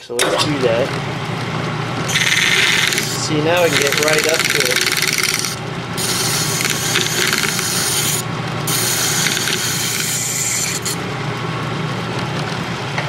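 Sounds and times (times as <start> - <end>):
lathe gear hum: 1.9 - 13.0
file rasping on metal: 2.1 - 11.0.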